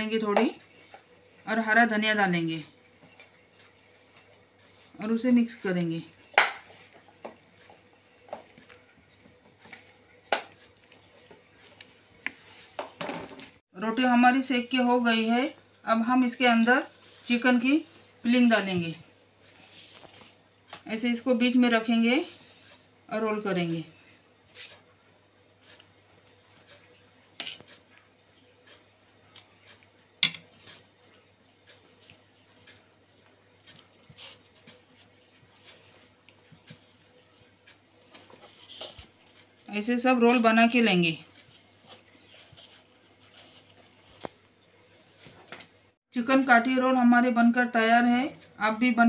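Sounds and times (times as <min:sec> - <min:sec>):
spoon scraping and tapping plate: 0:30.2 - 0:30.9.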